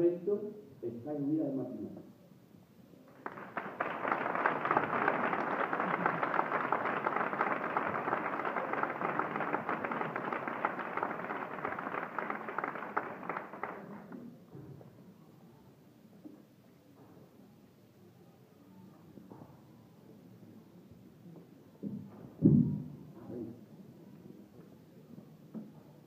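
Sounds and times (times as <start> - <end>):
crowd applauding: 3.1 - 14.3.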